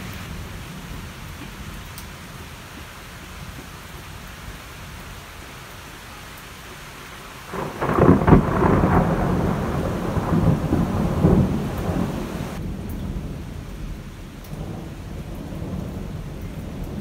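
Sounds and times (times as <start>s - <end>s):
heavy rain falling: 0.0s - 17.0s
thunderclap and rumble: 7.5s - 17.0s.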